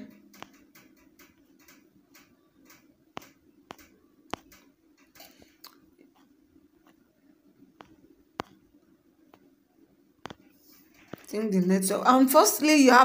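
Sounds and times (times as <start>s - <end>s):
sharp clicks: 0.0s - 6.2s
faint light ticking: 0.0s - 7.0s.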